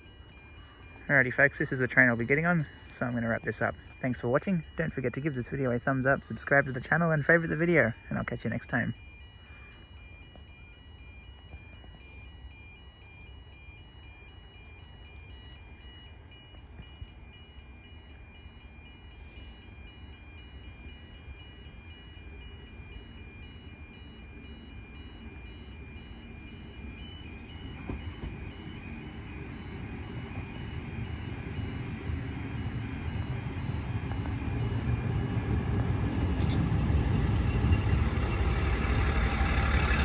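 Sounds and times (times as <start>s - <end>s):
railcar engine and wheel rumble: 0.0s - 12.6s, 20.9s - 40.0s
level crossing alarm beeps: 0.0s - 40.0s.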